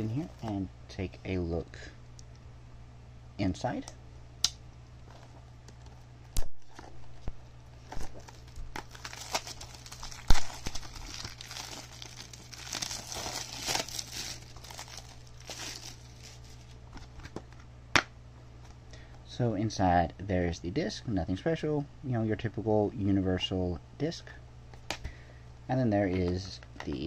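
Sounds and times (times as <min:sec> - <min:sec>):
plastic wrap crinkling and tearing: 0:07.8 - 0:17.3.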